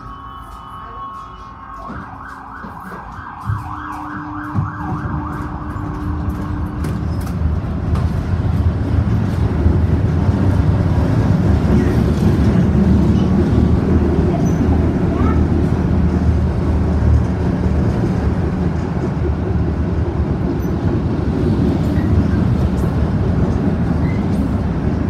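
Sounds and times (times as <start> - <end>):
tram pulling away: 0.0 - 25.0
siren sweeping up and down: 0.8 - 6.4.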